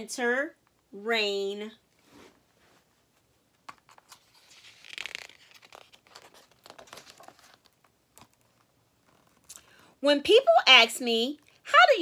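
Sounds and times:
book pages turning: 3.2s - 9.5s.

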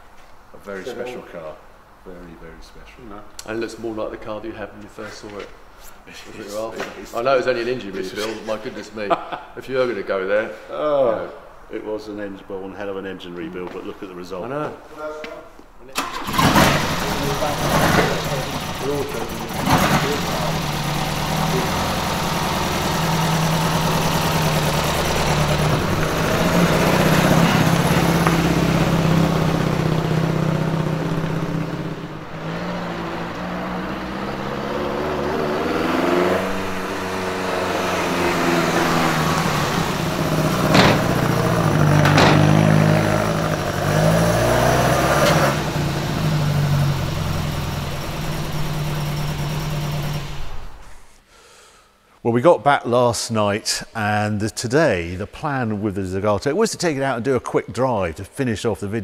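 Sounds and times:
car engine revving: 16.0s - 50.9s
sharp knocks: 40.2s - 43.3s.

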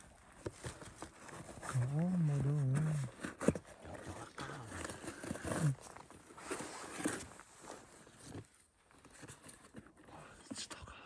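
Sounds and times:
cardboard carton tearing and rustling: 0.3s - 10.0s
person speaking: 1.6s - 3.2s, 3.9s - 5.8s.

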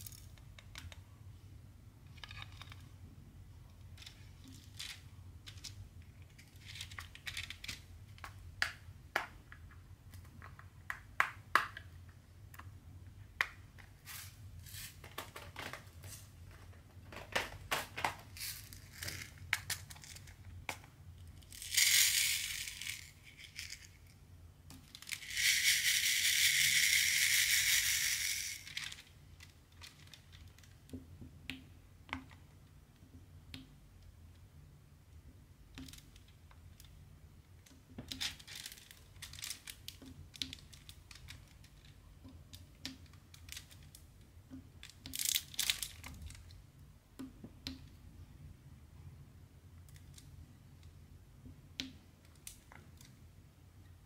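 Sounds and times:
small beads poured rattling: 21.4s - 24.2s, 24.8s - 29.1s.

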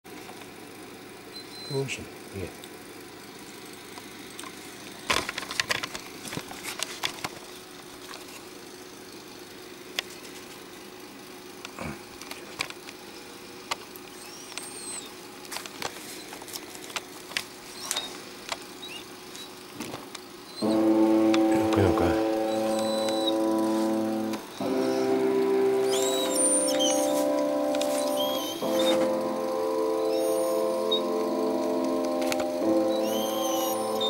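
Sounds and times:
steady hum with held tone: 0.1s - 34.0s
faint high squeaks: 20.5s - 25.1s, 25.9s - 29.2s, 32.3s - 34.0s.

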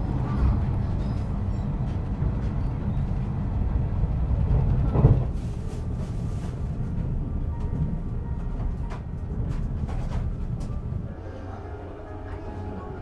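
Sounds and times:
train running low rumble: 0.0s - 13.0s
train bump: 4.4s - 13.0s.

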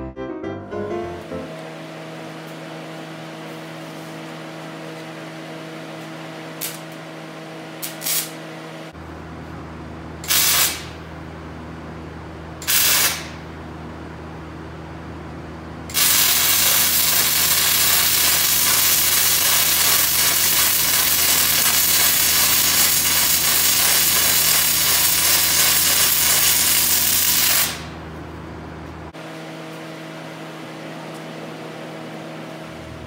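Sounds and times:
welding arc hissing: 6.6s - 6.8s, 7.8s - 8.4s, 10.3s - 11.0s, 12.6s - 13.4s, 15.9s - 27.9s.

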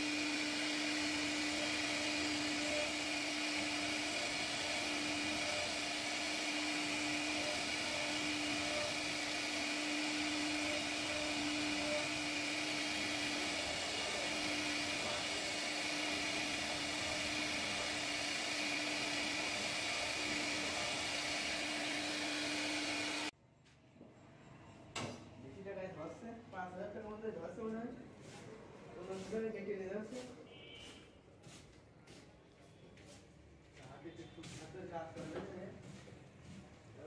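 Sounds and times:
hiss of wood cutting: 0.0s - 23.3s
router motor hum: 0.0s - 23.3s.

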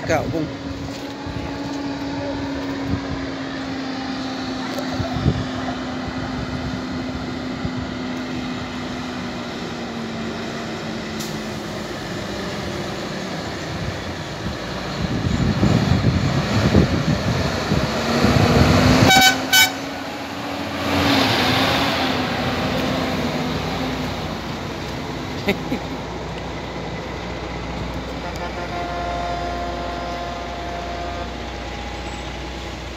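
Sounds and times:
heavy truck engines labouring: 0.0s - 32.9s
truck horn blasts: 18.9s - 20.0s, 28.2s - 32.0s.

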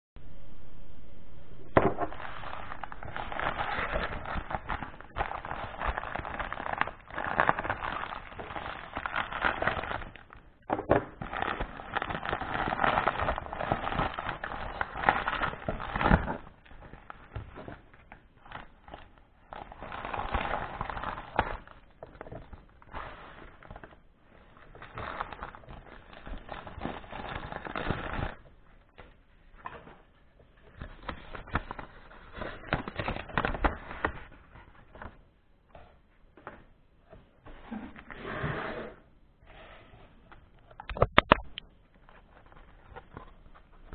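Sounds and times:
plastic bag crinkling: 2.0s - 28.6s.

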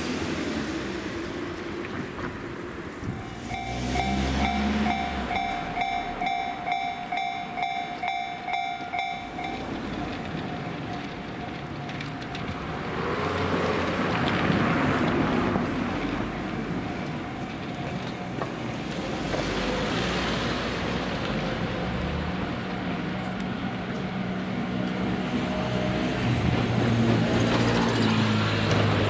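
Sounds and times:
electric train running: 2.2s - 13.7s
beeping warning tone: 3.5s - 10.2s.

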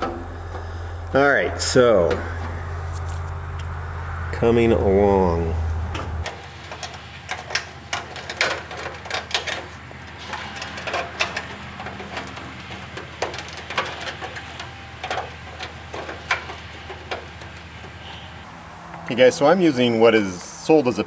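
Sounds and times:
wire mesh clicking and crinkling: 5.9s - 18.4s.

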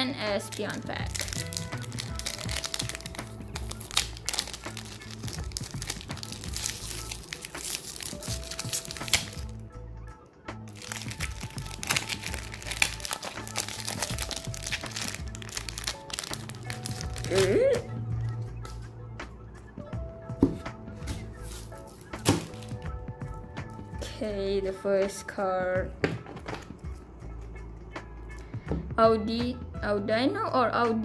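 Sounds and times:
background music: 0.0s - 31.0s
foil pack crinkling: 0.5s - 9.5s, 10.7s - 17.6s, 21.2s - 22.8s.

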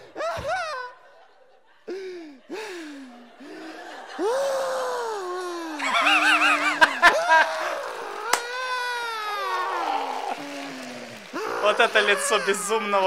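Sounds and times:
person laughing in whoops: 4.1s - 10.8s.

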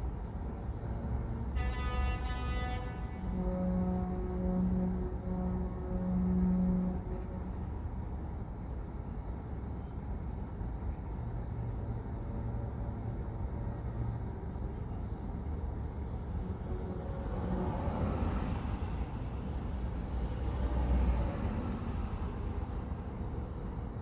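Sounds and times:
low rumble of traffic: 0.0s - 24.0s.

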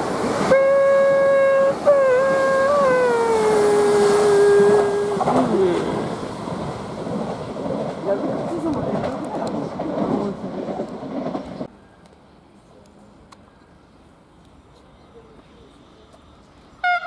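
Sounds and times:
train running rumble: 0.0s - 11.7s
train horn blasts: 0.4s - 5.5s.

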